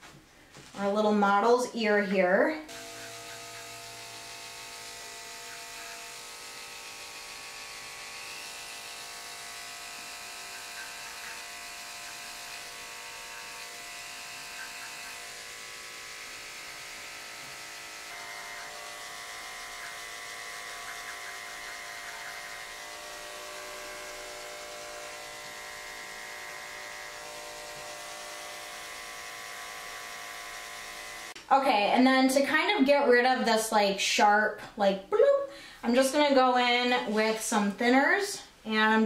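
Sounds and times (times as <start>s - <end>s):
electric clippers buzzing: 2.6s - 31.4s.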